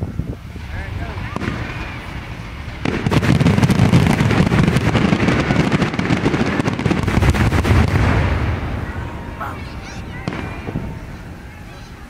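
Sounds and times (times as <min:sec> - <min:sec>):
fireworks crackling bangs: 0:00.0 - 0:12.0
heavy rumble: 0:00.0 - 0:12.0.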